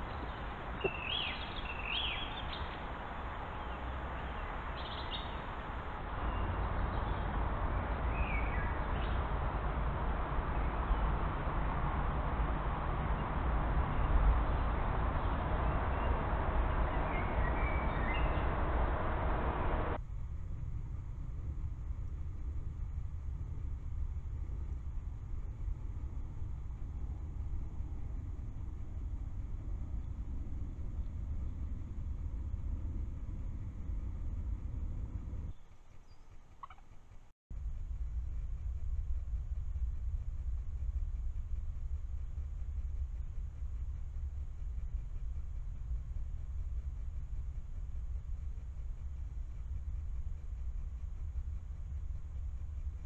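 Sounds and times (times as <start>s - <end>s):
distant expressway and factory noise: 0.0s - 53.0s
distant traffic rumble: 0.0s - 53.0s.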